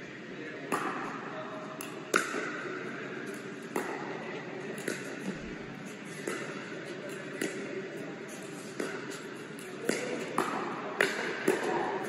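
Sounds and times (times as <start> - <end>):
paddles hitting plastic ball: 1.8 - 2.7, 4.8 - 5.2.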